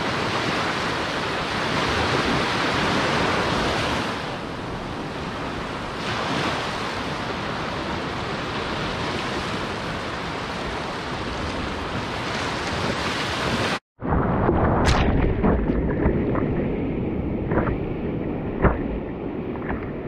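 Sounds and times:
small waves breaking on beach: 0.0s - 13.8s.

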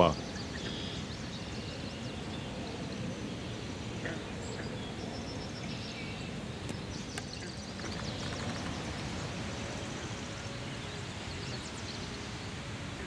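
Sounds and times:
background hiss: 0.0s - 13.0s.

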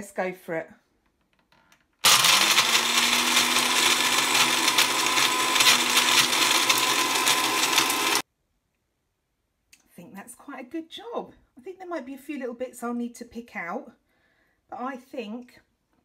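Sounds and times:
blender motor running: 2.0s - 8.2s.

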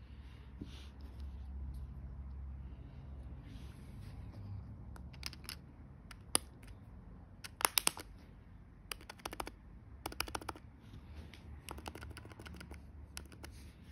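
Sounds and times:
keyboard key clicking: 5.0s - 6.7s, 7.4s - 8.1s, 8.9s - 10.6s, 11.7s - 13.5s.

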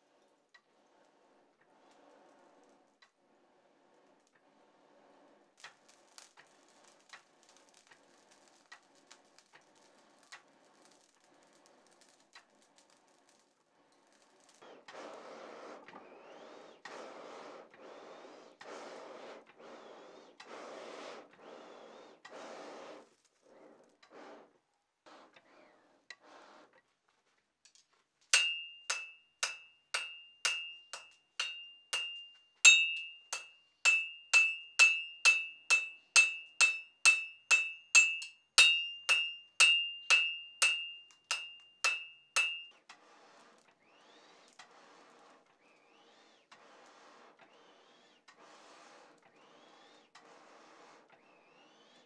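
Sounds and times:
hammer blows ringing on anvil: 28.4s - 42.8s.

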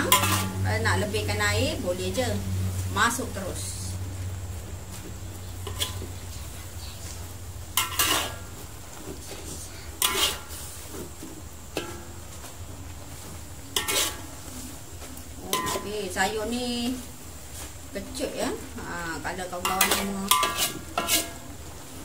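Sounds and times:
metal spatula scraping a wok: 0.0s - 3.4s, 5.4s - 18.3s, 19.2s - 22.0s
steady low hum: 0.0s - 22.0s.

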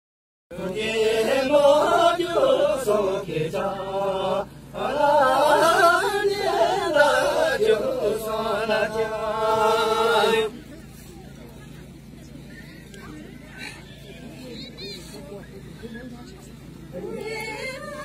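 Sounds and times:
group chanting a song: 0.5s - 10.6s.

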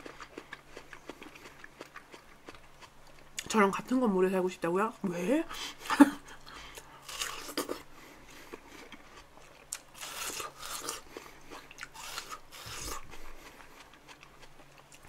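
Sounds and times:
person chewing: 0.0s - 3.5s, 5.7s - 15.0s
biting into watermelon: 6.8s - 15.0s.

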